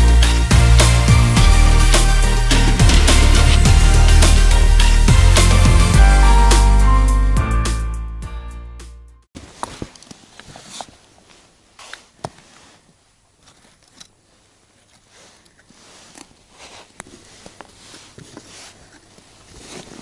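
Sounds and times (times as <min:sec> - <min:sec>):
rustling of soft case: 0:09.4 - 0:20.0.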